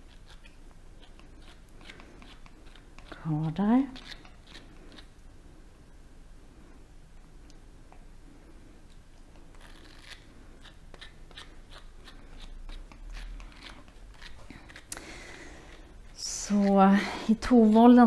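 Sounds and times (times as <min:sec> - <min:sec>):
brush rasping through dog fur: 0:00.0 - 0:05.1, 0:09.6 - 0:15.0, 0:16.1 - 0:18.0.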